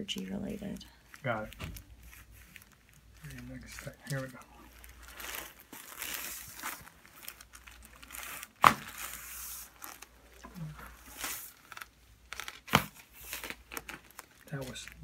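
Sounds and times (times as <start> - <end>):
soft rustling: 0.2 - 15.0
neck joint popping: 11.6 - 14.3.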